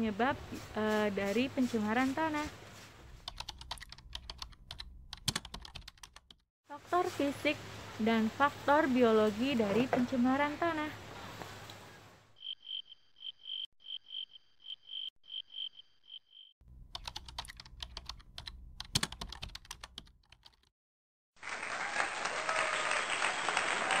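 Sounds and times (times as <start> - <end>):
cricket chirping: 12.4 - 16.6.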